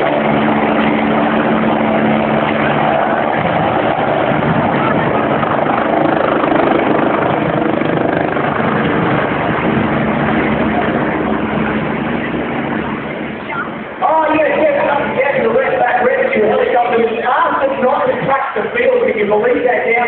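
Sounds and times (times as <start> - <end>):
stadium crowd roaring: 0.0 - 6.2.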